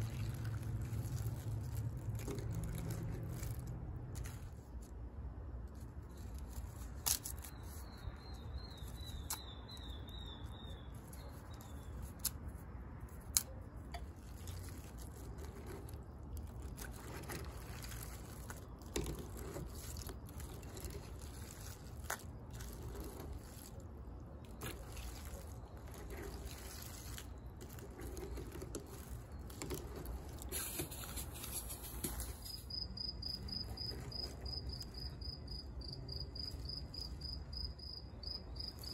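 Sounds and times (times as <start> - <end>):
cricket chirping: 32.1 - 38.9.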